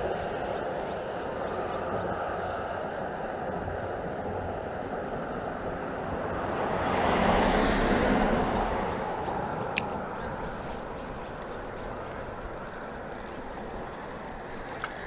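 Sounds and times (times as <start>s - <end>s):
traffic rushing over bridge: 5.9s - 15.0s.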